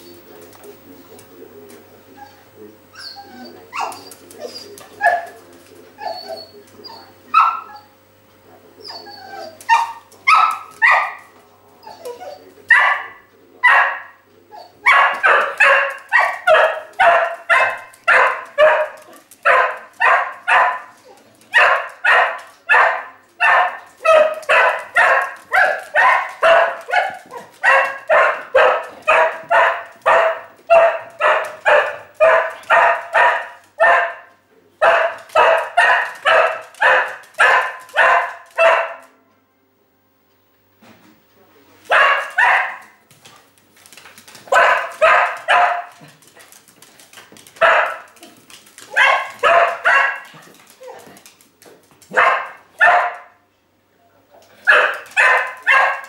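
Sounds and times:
dog barking: 5.0 - 5.4, 7.3 - 7.9, 9.7 - 11.3, 12.7 - 14.2, 14.8 - 39.1, 41.9 - 43.0, 44.5 - 46.0, 47.6 - 48.2, 48.9 - 50.4, 52.1 - 53.4, 54.6 - 56.0.

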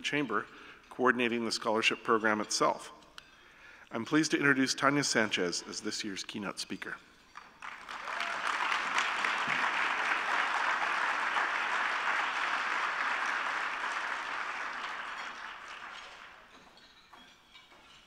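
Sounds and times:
audience applauding: 7.4 - 16.6.

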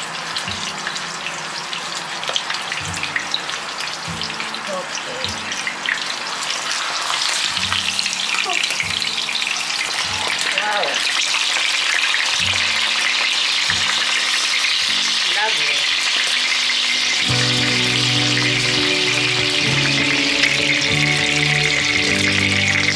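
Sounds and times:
fish sizzling in oil: 0.0 - 22.9
background music: 12.5 - 22.9.

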